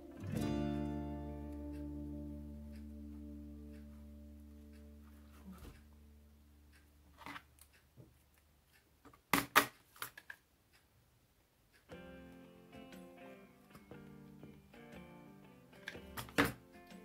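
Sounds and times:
acoustic guitar music: 0:00.0 - 0:06.2, 0:11.9 - 0:17.0.

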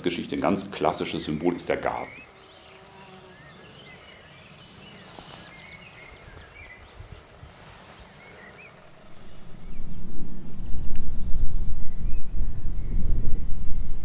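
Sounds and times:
small birds chirping: 0:00.0 - 0:10.1
low background rumble: 0:08.4 - 0:14.0.

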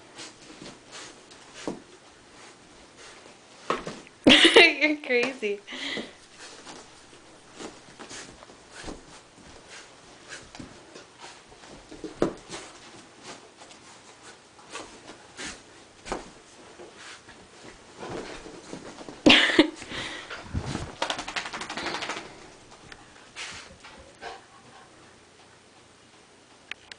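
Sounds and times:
puppy scuffing on carpet: 0:00.1 - 0:04.0, 0:06.2 - 0:19.3, 0:21.8 - 0:24.0.

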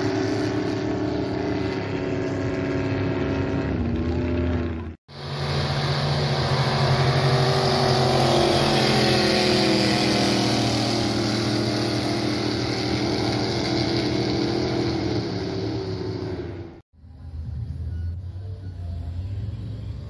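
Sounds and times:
jet boat engine speeding past: 0:00.0 - 0:20.0.

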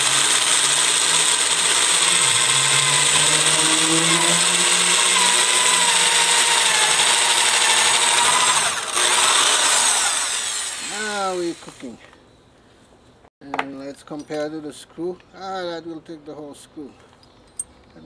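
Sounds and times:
electric drill boring into wood: 0:00.0 - 0:11.8.

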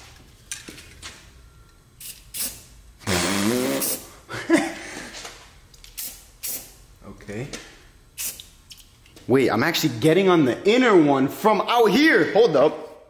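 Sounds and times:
spray can hissing: 0:02.0 - 0:04.1, 0:05.9 - 0:06.8, 0:08.2 - 0:08.5.

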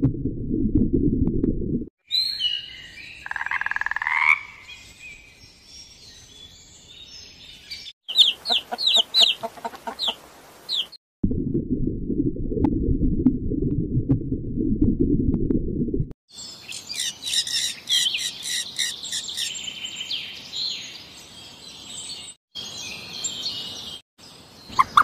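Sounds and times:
low underwater rumble: 0:00.0 - 0:01.9, 0:11.2 - 0:16.1
frog croaking: 0:03.2 - 0:04.6
chick peeping: 0:08.1 - 0:11.0, 0:24.7 - 0:25.0.

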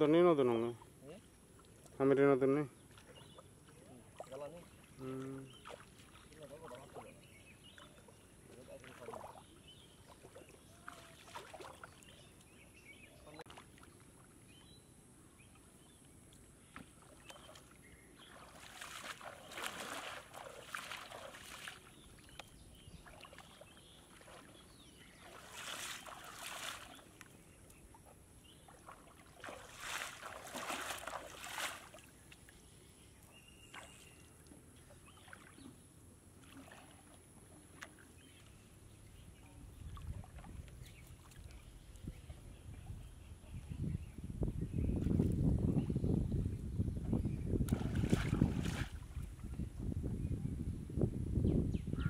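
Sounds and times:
shallow water splashing: 0:02.8 - 0:12.6, 0:15.5 - 0:32.6, 0:33.6 - 0:38.6, 0:47.6 - 0:49.6.

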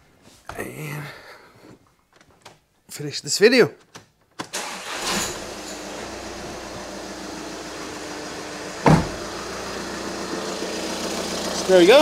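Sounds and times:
diesel engine starting and idling: 0:04.5 - 0:12.0.

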